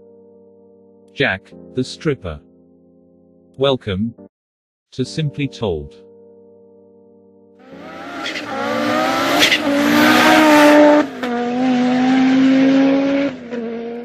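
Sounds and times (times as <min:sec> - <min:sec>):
car engine revving: 0:07.6 - 0:14.0
tyre and road noise: 0:07.8 - 0:14.0.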